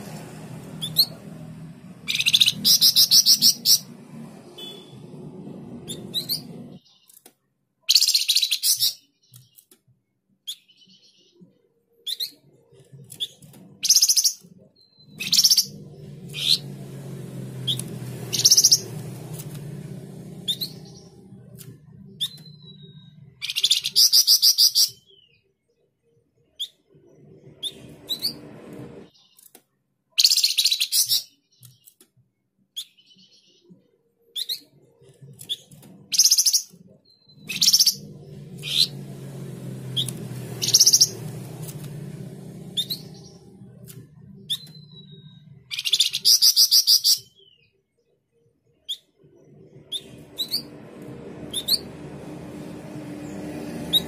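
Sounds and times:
low hum: 0.0 - 6.8, 14.5 - 23.9, 27.0 - 29.1, 37.0 - 45.9, 49.2 - 54.0
songbird chirping and trilling: 0.0 - 7.3, 7.9 - 29.6, 30.2 - 32.0, 32.7 - 54.0.

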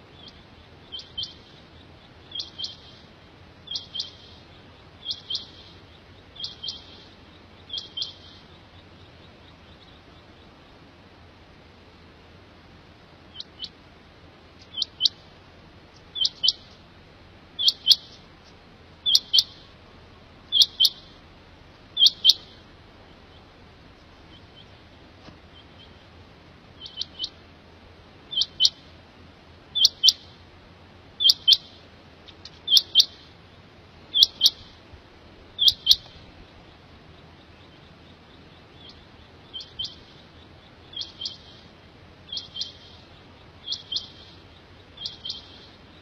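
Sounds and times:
quail calling: 0.0 - 10.8, 13.3 - 13.8, 14.6 - 15.3, 16.0 - 16.8, 17.6 - 18.3, 19.0 - 19.8, 20.4 - 21.2, 21.9 - 27.4, 28.3 - 28.9, 29.7 - 30.4, 31.2 - 33.3, 34.1 - 34.9, 35.5 - 46.0.

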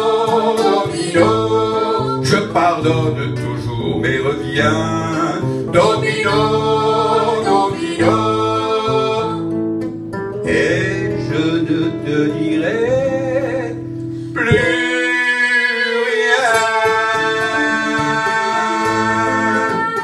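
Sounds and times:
man and woman singing: 0.0 - 9.6, 10.4 - 20.0
acoustic guitar: 0.0 - 20.0.

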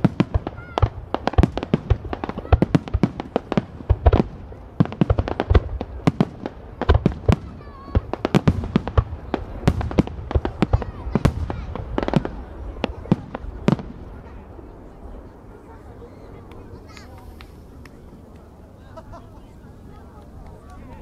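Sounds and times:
fireworks bursting with sharp bangs: 0.0 - 15.8
continuous low rumble: 0.0 - 21.0.

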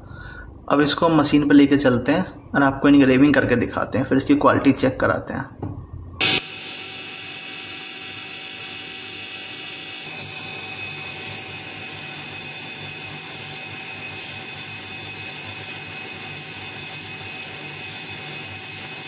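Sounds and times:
laser engraver whirring: 6.2 - 19.0.

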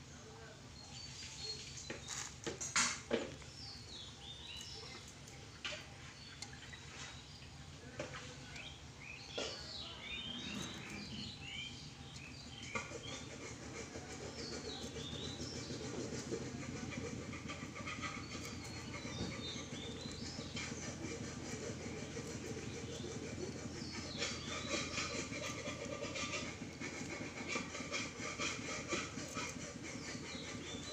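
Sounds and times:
birds chirping: 0.0 - 30.9
steady low hum: 3.5 - 30.9.

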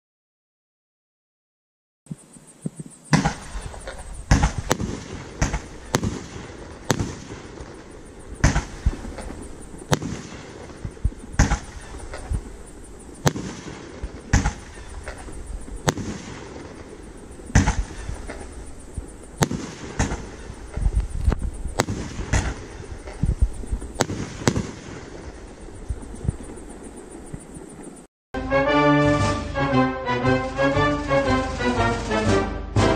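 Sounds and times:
firework launch thumps: 3.1 - 7.8, 8.4 - 12.6, 13.2 - 16.9, 17.5 - 25.2
firework bangs: 3.1 - 27.6.

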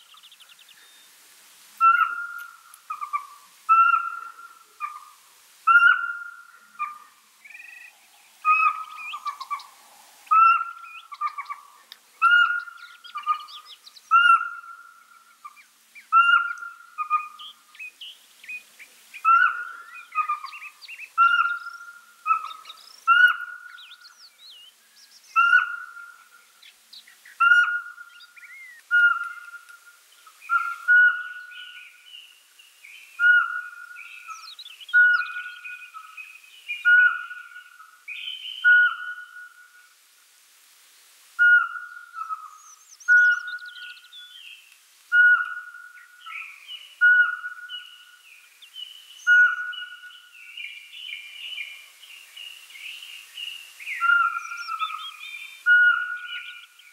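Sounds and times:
owl whistling notes: 1.8 - 5.0, 27.4 - 28.0, 28.9 - 29.8, 30.5 - 31.8, 33.2 - 36.0, 36.8 - 39.7, 41.4 - 43.9, 45.1 - 48.0, 49.2 - 50.2, 53.9 - 56.7.

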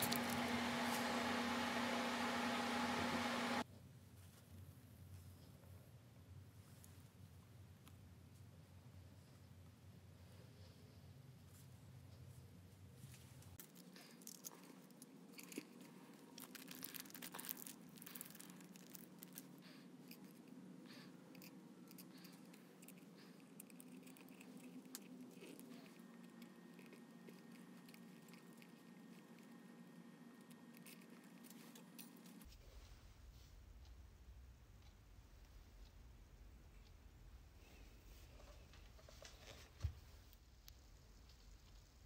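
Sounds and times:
faint steady hum: 0.0 - 42.0.

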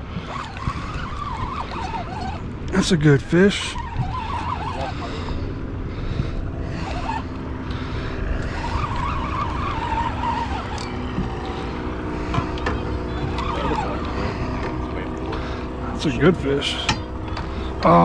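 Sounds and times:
wind noise on microphone: 0.0 - 2.8, 3.7 - 13.8
boat motor running: 0.0 - 18.0
wavering whine: 0.0 - 18.0.

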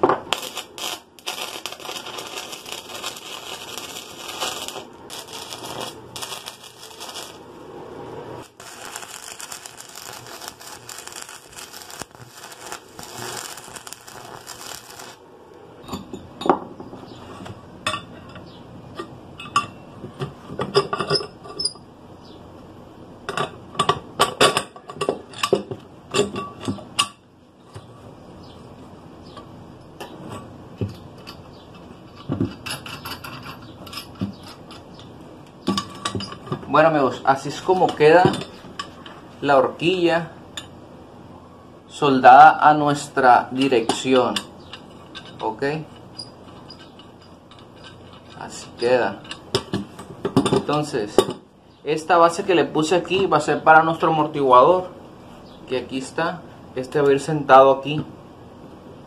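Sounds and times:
arc welder crackling hiss: 0.0 - 15.8.

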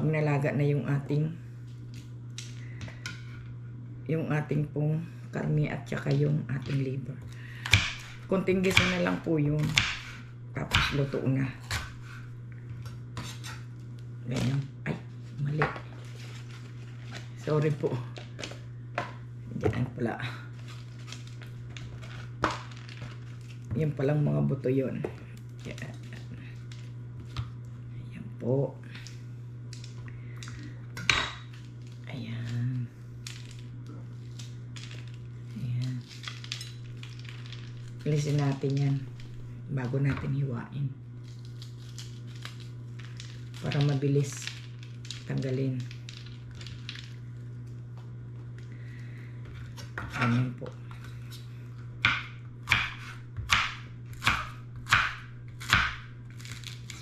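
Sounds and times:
steady low hum: 0.0 - 57.0
knife chopping on cutting board: 52.0 - 56.1.

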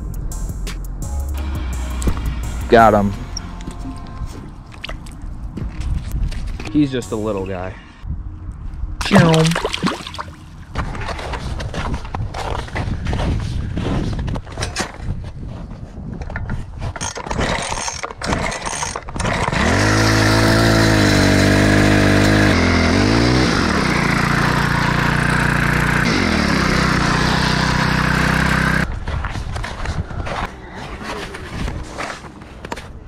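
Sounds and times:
small engine revving: 18.3 - 28.9.

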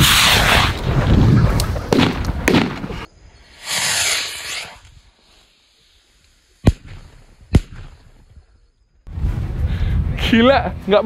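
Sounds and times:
firecracker bang: 1.9 - 4.2
hissing spray of sparks: 3.5 - 4.9.

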